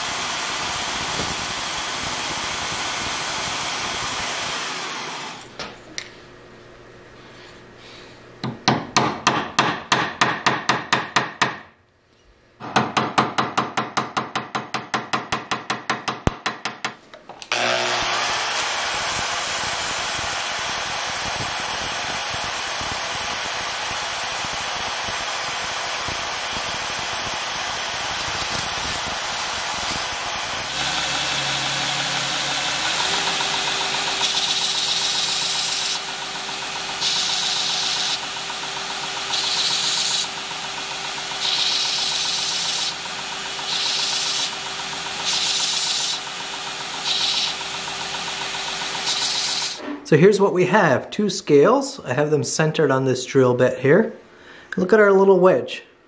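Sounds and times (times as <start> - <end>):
steady machine noise: 0.0 - 5.5, 17.5 - 49.8.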